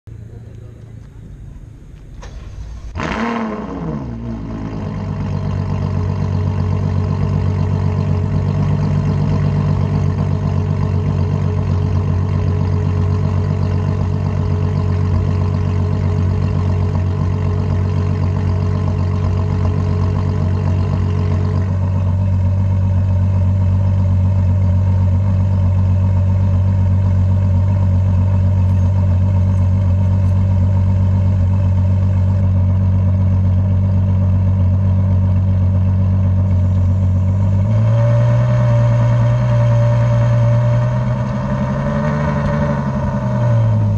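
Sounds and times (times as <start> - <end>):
car engine starting and idling: 0.1 - 43.9.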